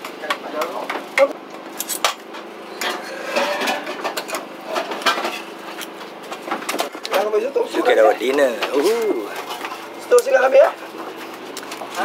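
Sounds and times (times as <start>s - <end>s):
dishes and utensils clattering: 2.8s - 5.6s.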